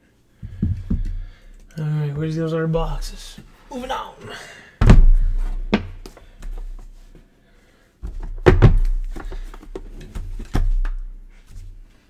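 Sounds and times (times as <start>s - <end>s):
boxes knocking on tabletop: 0.4s - 1.2s, 8.1s - 9.9s.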